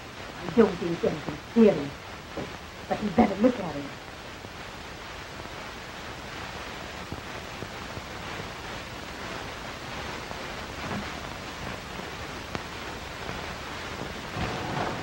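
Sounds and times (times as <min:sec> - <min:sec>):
film soundtrack hiss and crackle: 0:00.0 - 0:15.0.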